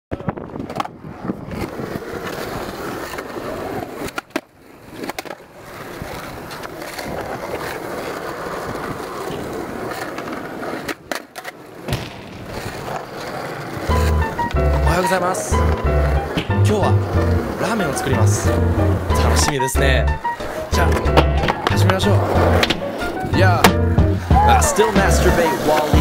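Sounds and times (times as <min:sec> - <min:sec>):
skateboard clacks: 0:00.1 - 0:18.1, 0:19.0 - 0:26.0
skateboard wheels rolling: 0:00.1 - 0:26.0.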